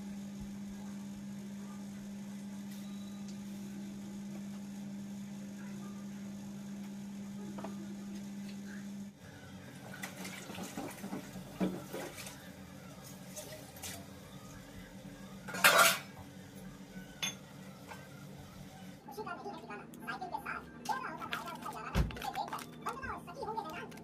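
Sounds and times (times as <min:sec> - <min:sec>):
dishes and cutlery clinking: 0:15.5 - 0:16.2, 0:17.2 - 0:18.0.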